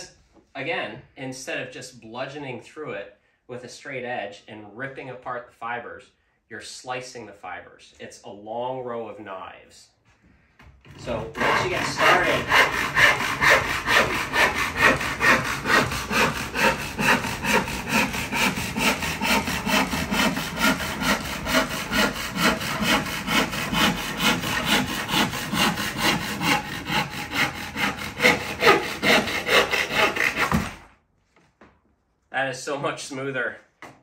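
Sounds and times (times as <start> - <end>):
handsaw cutting wood: 10.9 - 30.9.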